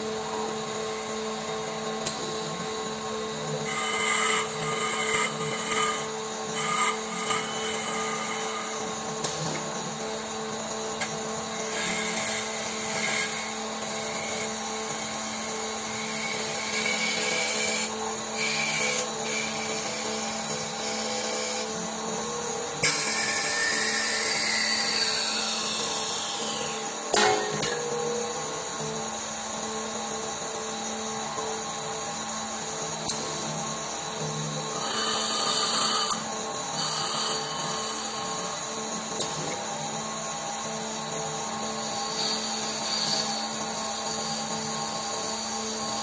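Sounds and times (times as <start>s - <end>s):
lathe motor hum: 0.0s - 46.0s
cutting tools rasping on wood: 3.6s - 27.8s, 34.6s - 38.8s.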